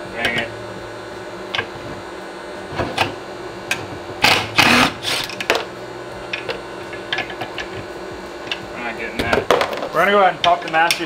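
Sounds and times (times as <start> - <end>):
cordless driver whirring: 3.7 - 5.7.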